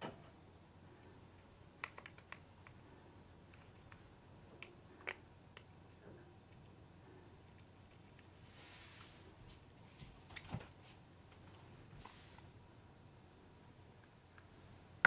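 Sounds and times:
plastic cup clicking and crackling: 1.8s - 2.8s.

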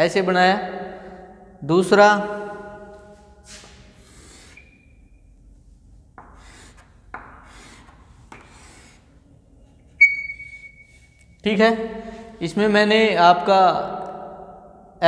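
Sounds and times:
chalk scraping on chalkboard: 3.5s - 4.8s, 6.2s - 9.2s.

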